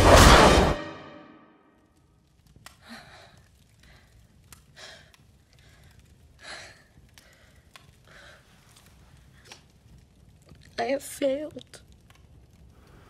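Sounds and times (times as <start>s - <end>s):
faint clicks: 2.5s - 9.8s, 11.6s - 13.0s.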